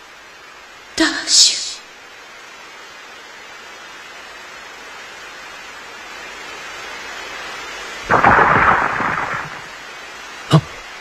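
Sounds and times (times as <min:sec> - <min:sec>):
steady hiss: 0:00.0 - 0:11.0
rocks and rubble crashing: 0:08.1 - 0:09.8.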